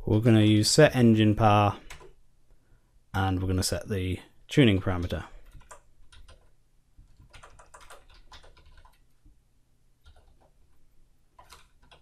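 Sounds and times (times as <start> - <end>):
faint keyboard typing: 1.7 - 2.2, 4.9 - 9.4, 10.0 - 12.0.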